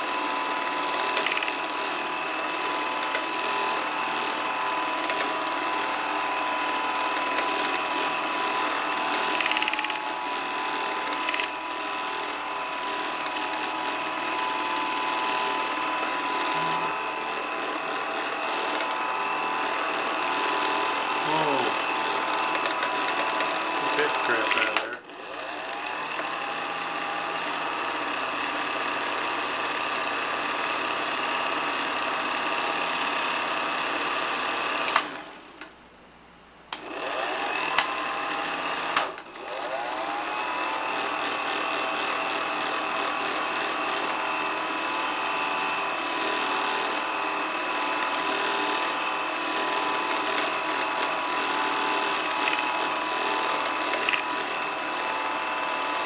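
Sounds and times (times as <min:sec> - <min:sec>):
film projector whirring clatter: 0:00.0 - 0:56.0
projector click: 0:37.7 - 0:38.0.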